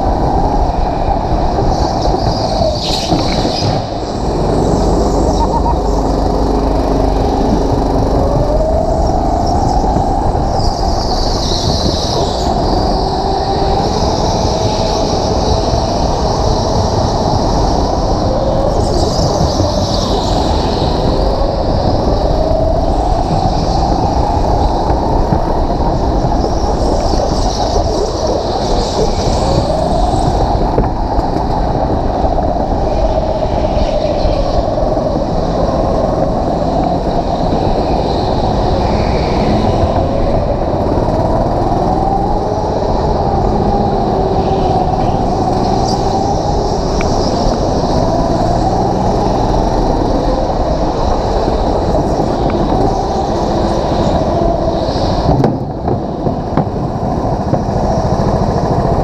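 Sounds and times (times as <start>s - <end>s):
go-kart engine running: 2.9s - 10.7s.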